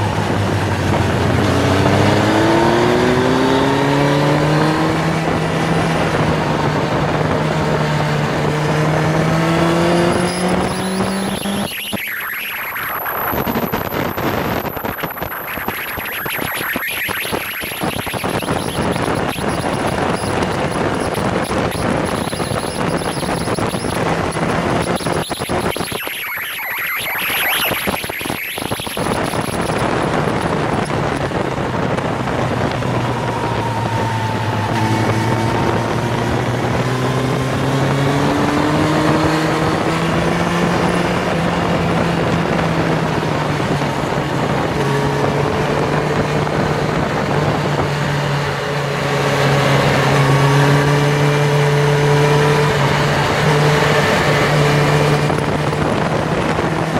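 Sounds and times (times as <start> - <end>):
motorcycle engine running hard: 0.0 - 11.7, 29.0 - 56.9.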